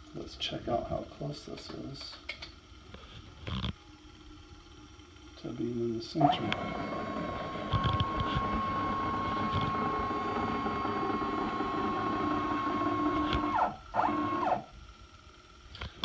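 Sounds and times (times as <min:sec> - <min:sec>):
cnc router axis whine: 0:05.4 - 0:14.8.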